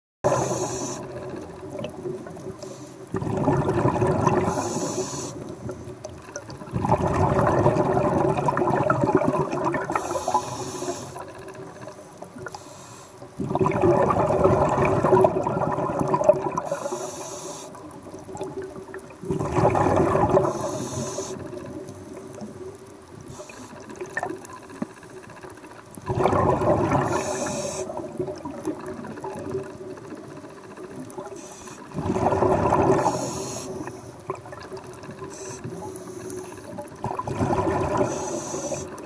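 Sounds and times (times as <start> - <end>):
regulator breathing hisses: 0.3 - 1.2, 2.6 - 3.1, 4.5 - 5.5, 9.9 - 11.3, 12.5 - 13.3, 16.7 - 17.9, 20.5 - 21.6, 23.3 - 23.9, 27.0 - 27.9, 31.3 - 31.9, 33.0 - 34.2, 35.3 - 36.8, 38.0 - 39.0
underwater exhaled bubbles rumbling: 0.3 - 10.6, 13.3 - 17.1, 17.7 - 39.0.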